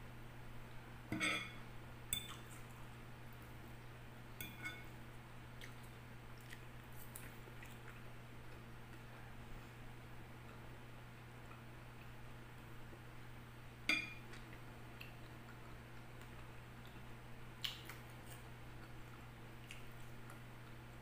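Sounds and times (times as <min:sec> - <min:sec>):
fork clinking glass bowl: 0:01.1 - 0:02.4, 0:04.4 - 0:04.9, 0:13.9 - 0:14.2.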